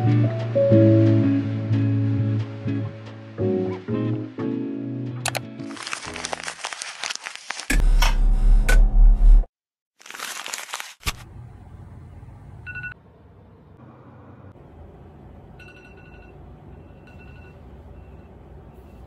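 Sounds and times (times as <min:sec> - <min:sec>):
city traffic rumble: 0:11.2 - 0:19.0
smartphone alarm beeping: 0:15.6 - 0:18.3.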